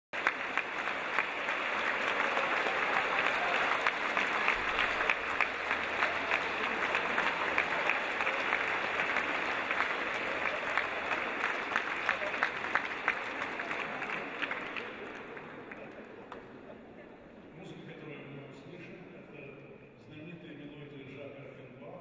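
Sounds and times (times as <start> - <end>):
audience applauding: 0.2 - 16.5.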